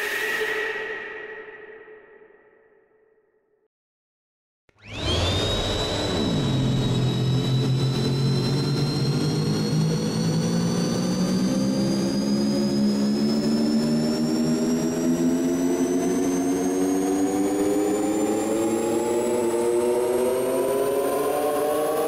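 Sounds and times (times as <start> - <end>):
cinematic riser: 4.8 - 22.0.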